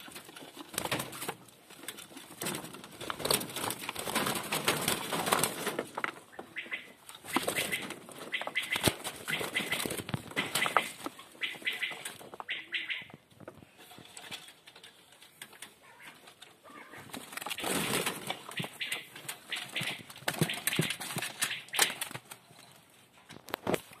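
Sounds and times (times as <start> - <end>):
rustling: 0.0 - 24.0
partridges calling: 6.3 - 13.2, 18.5 - 22.0
sharp clicks and knocks: 17.2 - 22.4.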